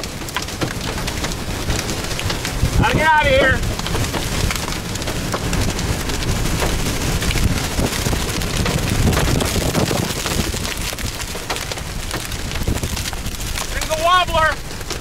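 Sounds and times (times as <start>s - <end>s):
heavy rain tapping on vehicle: 0.0s - 15.0s
wind and road noise rumble: 0.0s - 15.0s.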